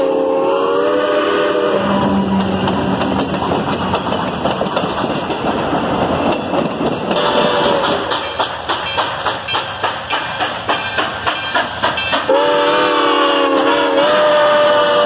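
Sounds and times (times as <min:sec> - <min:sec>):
steam locomotive chime whistle: 0:00.0 - 0:02.4, 0:07.2 - 0:15.0
train wheels rolling on rails: 0:00.0 - 0:15.0.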